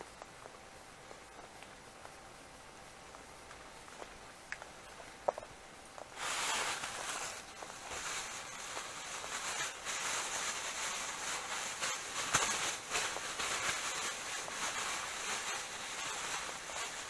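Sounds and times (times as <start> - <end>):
plastic bag rustling: 6.2 - 17.0.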